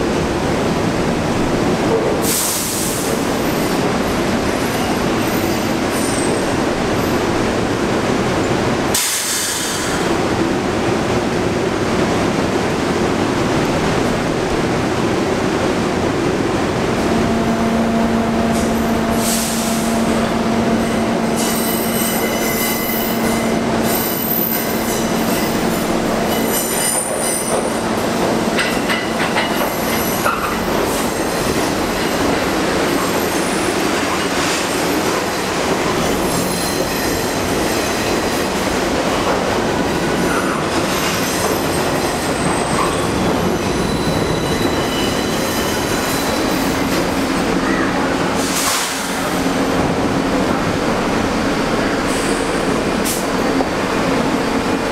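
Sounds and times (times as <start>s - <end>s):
subway train rumbling: 0.0s - 54.9s
train wheels squealing: 4.6s - 6.5s, 20.9s - 27.8s, 29.5s - 38.5s, 40.2s - 47.0s.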